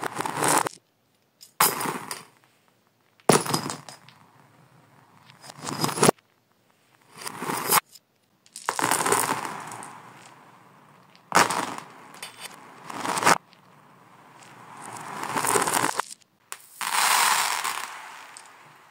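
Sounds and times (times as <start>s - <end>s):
small objects clattering on hard floor: 3.0s - 4.2s, 7.1s - 10.4s, 11.0s - 13.7s, 14.3s - 18.9s.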